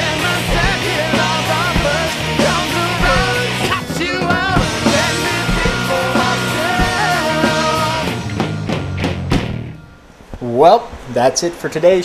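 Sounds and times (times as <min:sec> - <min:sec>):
person singing: 0:00.0 - 0:08.2
rock band with drums: 0:00.0 - 0:09.8.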